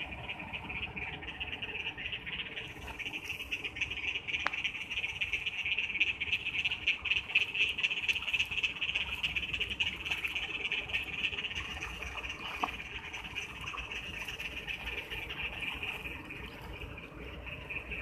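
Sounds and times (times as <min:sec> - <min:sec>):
frogs trilling: 0:00.0 - 0:18.0
floodwater rushing: 0:06.9 - 0:18.0.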